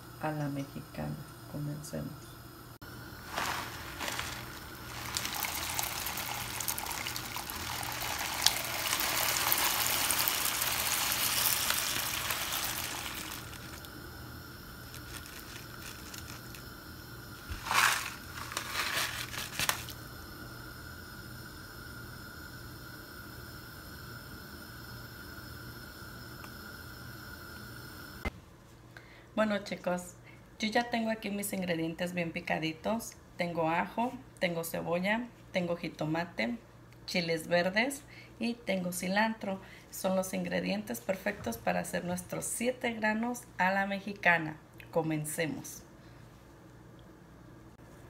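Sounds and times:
faint steady hum: 0:00.0 - 0:48.0
dry grains pouring into water: 0:03.2 - 0:13.9, 0:14.8 - 0:16.6, 0:17.5 - 0:20.0
plastic bag crinkling: 0:03.2 - 0:13.9, 0:14.8 - 0:16.6, 0:17.4 - 0:20.0.

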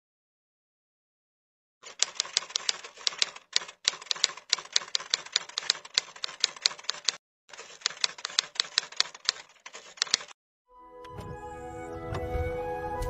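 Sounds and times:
typewriter key clicks: 0:01.8 - 0:10.4.

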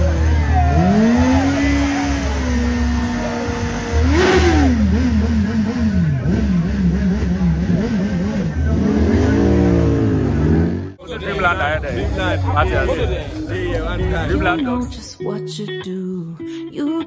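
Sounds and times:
motorcycle engine revving: 0:00.0 - 0:11.5.

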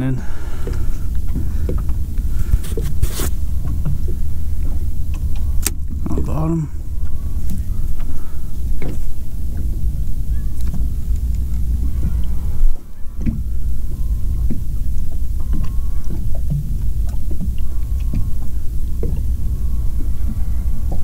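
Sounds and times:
waves lapping against boat hull: 0:00.0 - 0:21.0
wind rumble on microphone: 0:00.0 - 0:21.0.

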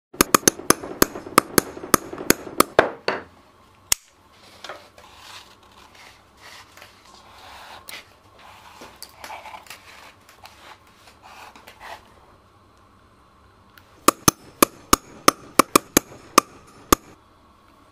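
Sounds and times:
hammer tapping metal tool: 0:00.2 - 0:03.3, 0:14.0 - 0:17.2.

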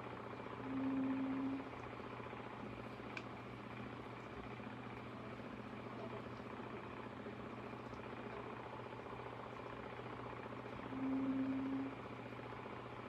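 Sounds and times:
small electric motor humming: 0:00.6 - 0:02.2, 0:08.2 - 0:12.7.

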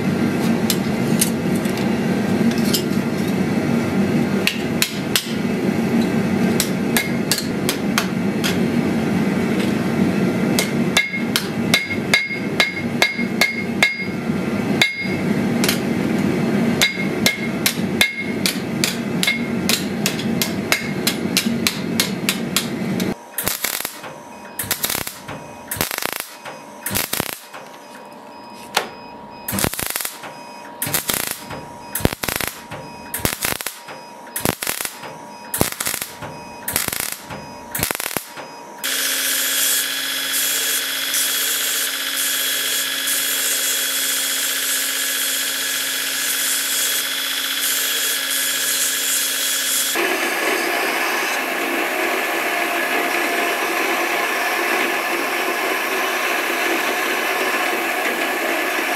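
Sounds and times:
low machine hum: 0:00.0 - 0:39.3
hammer striking steel on anvil: 0:04.4 - 0:05.4, 0:06.6 - 0:08.6, 0:10.6 - 0:14.2, 0:14.8 - 0:15.9, 0:16.8 - 0:22.8.

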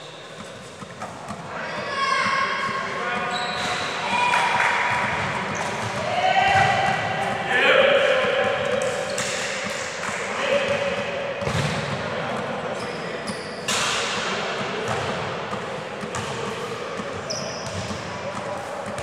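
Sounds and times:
shoe squeaks on floor: 0:03.2 - 0:04.0, 0:12.8 - 0:13.7, 0:17.2 - 0:18.0
ball kicked and bouncing: 0:10.7 - 0:11.9.

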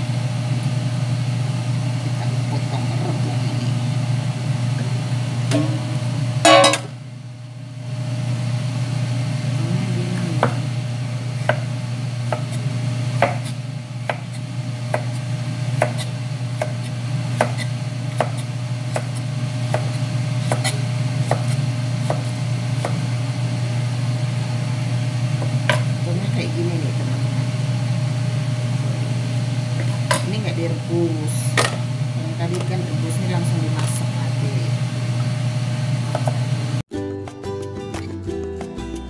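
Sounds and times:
steady low hum: 0:00.0 - 0:36.8
cleaver chopping on cutting board: 0:11.4 - 0:12.6, 0:13.2 - 0:15.2, 0:15.8 - 0:23.0.

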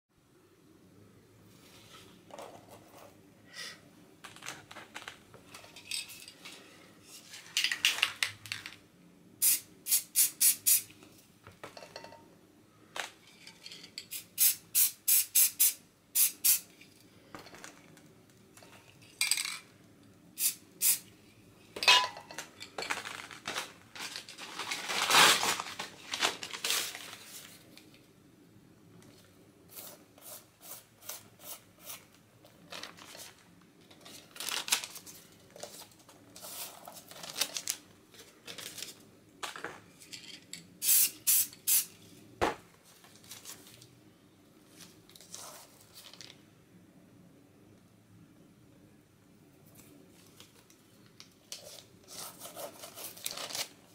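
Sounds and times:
spray paint hissing: 0:09.4 - 0:10.9, 0:14.1 - 0:16.7, 0:20.4 - 0:21.0, 0:40.8 - 0:41.9
paper rustling: 0:22.8 - 0:27.7, 0:32.6 - 0:39.0, 0:42.8 - 0:43.9, 0:51.5 - 0:53.9.

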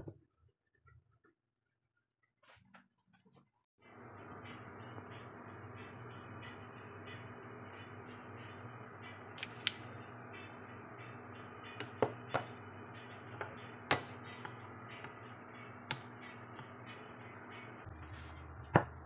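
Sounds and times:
steady low hum: 0:03.8 - 0:19.0.

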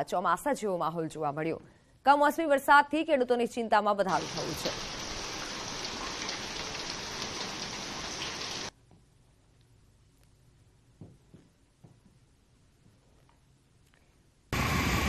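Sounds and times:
heavy rain on wet street: 0:04.2 - 0:08.7.

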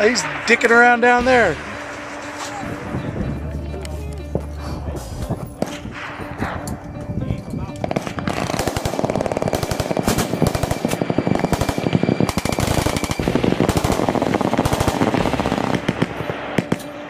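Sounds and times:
automatic machine-gun fire: 0:07.9 - 0:16.8.

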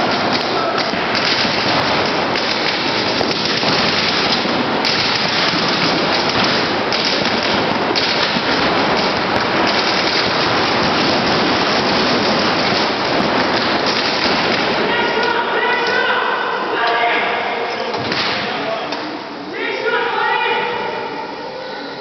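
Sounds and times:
paintball markers firing rapidly: 0:00.0 - 0:15.4.

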